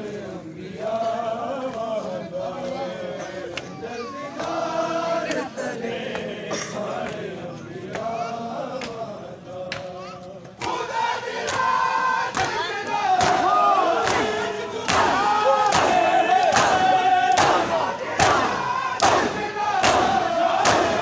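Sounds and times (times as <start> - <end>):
men chanting together: 0.0 - 21.0
crowd shouting: 9.6 - 21.0
hands striking bare chests: 13.2 - 21.0.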